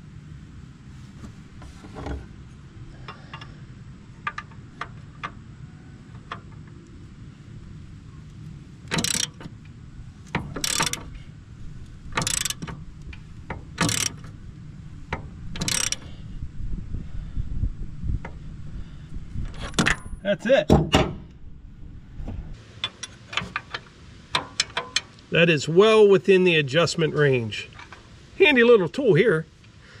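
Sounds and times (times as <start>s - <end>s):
ratchet wrench ratcheting: 8.9s - 9.5s, 10.2s - 11.2s, 12.1s - 14.4s, 15.1s - 16.2s.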